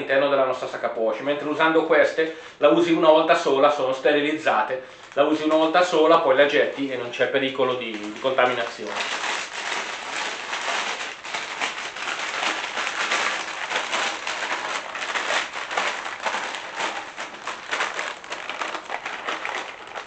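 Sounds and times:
plastic bag crinkling: 4.4s - 20.0s.

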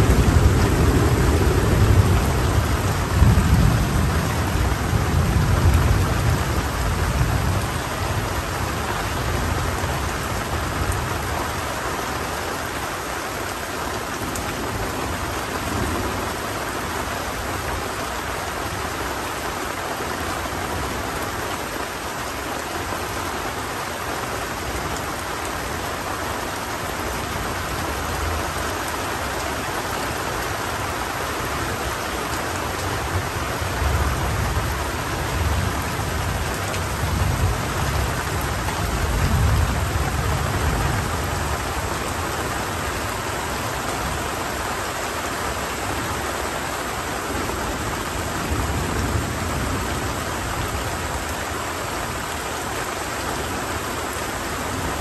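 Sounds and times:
low rolling thunder: 0.0s - 8.5s
heavy rain falling: 0.0s - 55.0s.

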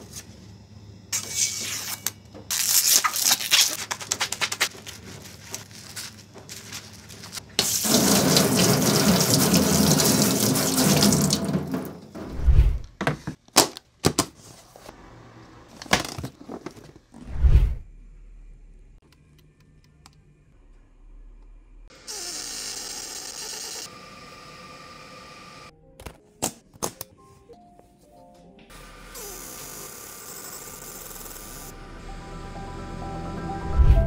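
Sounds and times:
paper rustling: 2.5s - 7.5s
tap water running into sink: 7.6s - 12.0s.

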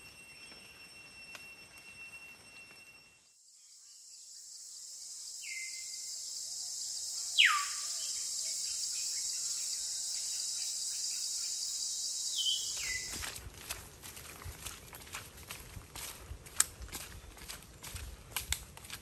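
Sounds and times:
high-pitched insect chorus: 0.0s - 13.4s
bird descending whistled calls: 7.0s - 13.2s.

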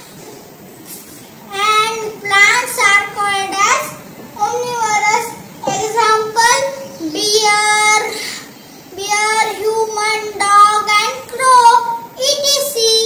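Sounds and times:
boy reciting in sing-song voice: 1.4s - 13.0s.

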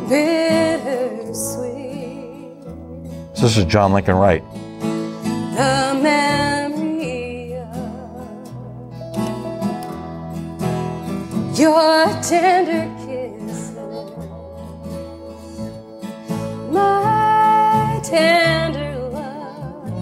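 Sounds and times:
strummed acoustic guitars: 0.0s - 20.0s
fiddle melody: 3.4s - 6.6s.

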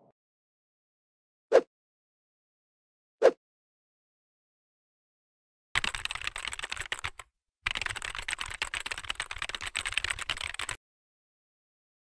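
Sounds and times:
computer keyboard typing: 5.8s - 10.8s.

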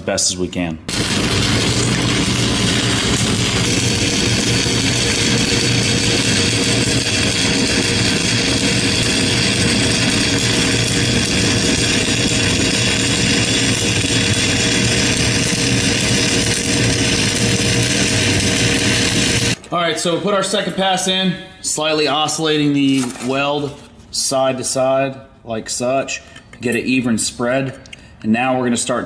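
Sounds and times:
welding arc crackling: 0.9s - 19.6s.

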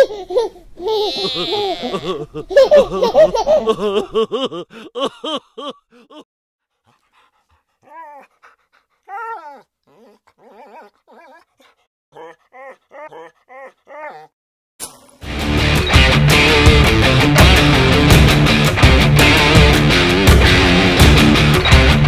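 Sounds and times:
people laughing: 1.1s - 6.2s
dog whimpering and yipping: 7.6s - 14.4s.

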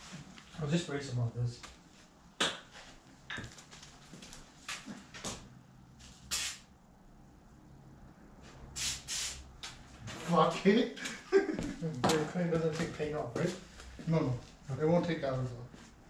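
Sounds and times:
aerosol spray hissing: 6.3s - 6.7s, 8.8s - 9.4s.

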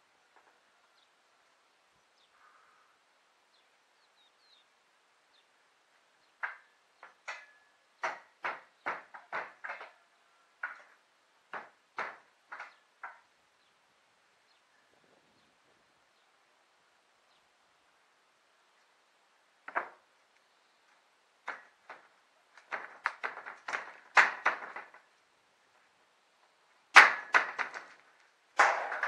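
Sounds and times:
hammer striking wooden boards: 6.4s - 13.3s, 19.7s - 20.0s, 21.4s - 25.0s, 26.9s - 29.0s.

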